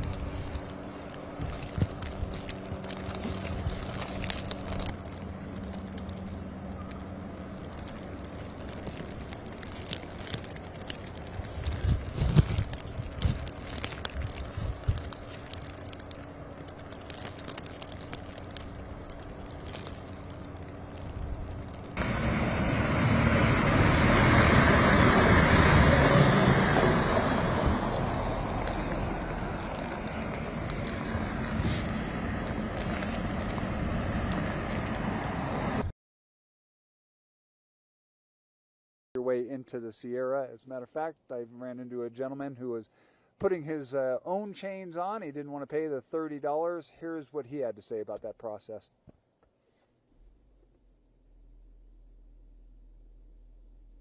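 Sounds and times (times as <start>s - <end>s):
short crunches: 0.0s - 22.0s
outdoor noise: 0.0s - 35.9s, 39.2s - 54.0s
vehicle engine idling: 12.7s - 35.8s
traffic on wet highway: 19.8s - 35.9s
tyres swishing through slush: 22.0s - 35.9s.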